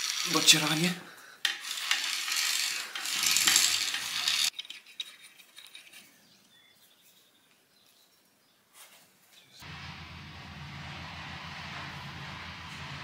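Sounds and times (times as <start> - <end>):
harsh scraping hiss: 0.0 - 4.5.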